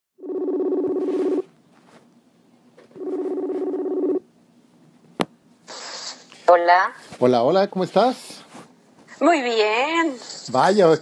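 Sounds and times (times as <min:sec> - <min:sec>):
phone ringing tone: 0:00.2 - 0:01.5, 0:03.0 - 0:04.2.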